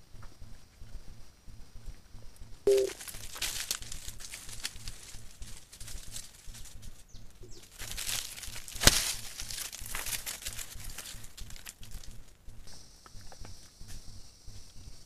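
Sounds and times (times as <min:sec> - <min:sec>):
wings flapping: 0:02.7 - 0:12.7
dry leaves rustling: 0:02.7 - 0:14.9.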